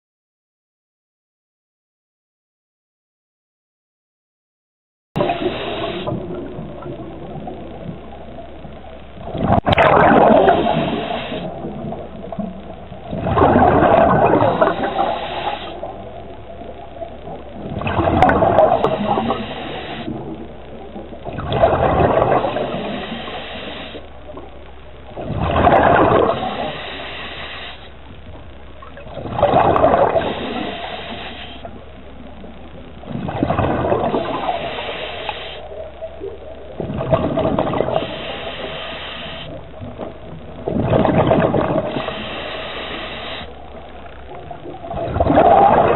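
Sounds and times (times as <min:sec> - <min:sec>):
regulator hiss: 0:05.2 - 0:06.6, 0:10.3 - 0:11.8, 0:14.2 - 0:16.2, 0:18.3 - 0:20.4, 0:22.2 - 0:24.2, 0:26.0 - 0:28.1, 0:29.6 - 0:32.3, 0:34.0 - 0:36.5, 0:37.7 - 0:40.0, 0:41.7 - 0:44.6
exhaled bubbles gurgling: 0:05.2 - 0:45.9.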